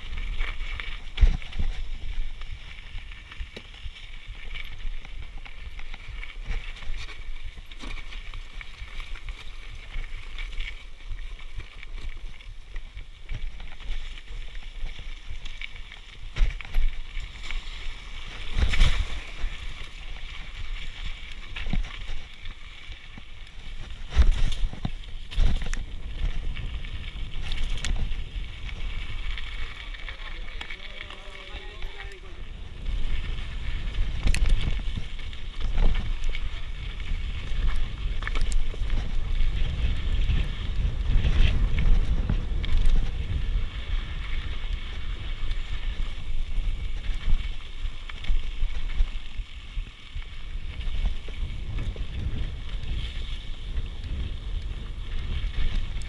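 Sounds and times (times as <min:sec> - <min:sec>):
bike rattling: 0:00.0 - 0:56.0
tyres rumbling over gravel: 0:00.0 - 0:56.0
wind on microphone: 0:23.4 - 0:56.0.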